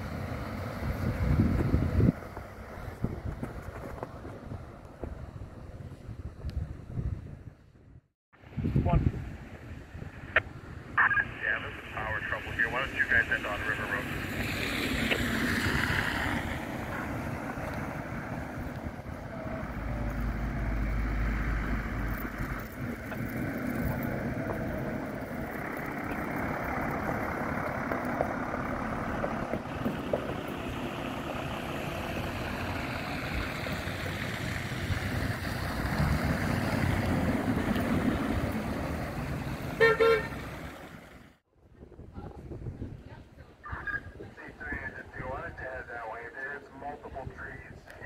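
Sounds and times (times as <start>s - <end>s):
fire engine road rumble: 0.0s - 48.0s
fire engine horn blast: 39.8s - 40.5s.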